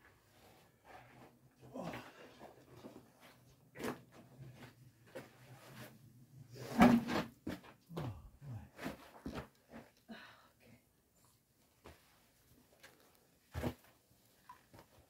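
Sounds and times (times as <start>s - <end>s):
knocks and scrapes: 6.6s - 7.8s.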